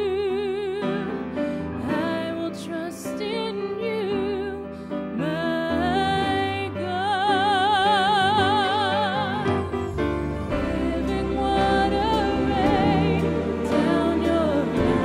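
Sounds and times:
woman singing a hymn: 0.0s - 9.7s, 10.5s - 15.0s
instrumental accompaniment: 6.2s - 15.0s.

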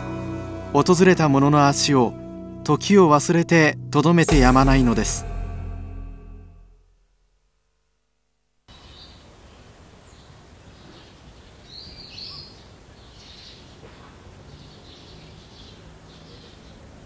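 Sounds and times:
background hiss: 7.0s - 17.0s
small birds chirping: 8.7s - 17.0s.

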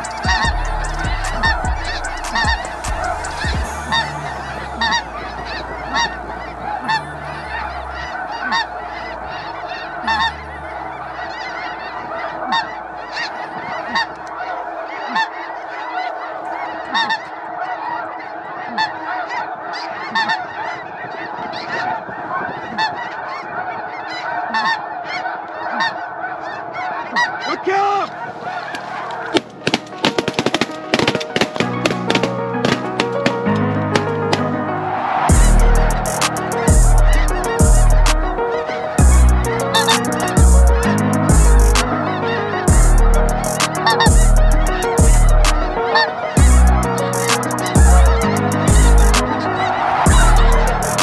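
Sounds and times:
geese honking: 0.0s - 51.0s.

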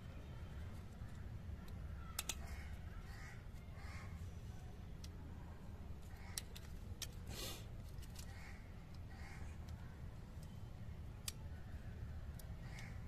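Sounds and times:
small sharp plastic clicks: 1.0s - 2.8s, 6.0s - 11.6s, 12.2s - 13.0s.

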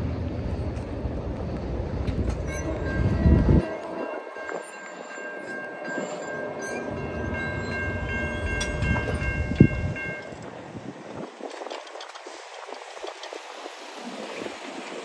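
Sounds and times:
train rumbling on tracks: 0.0s - 15.0s.

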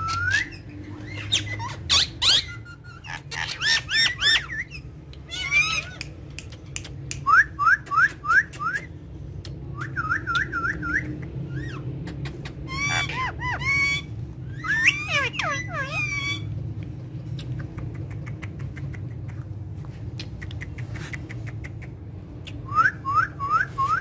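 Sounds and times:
parakeets chirping and squawking: 0.0s - 7.1s, 10.0s - 17.0s.

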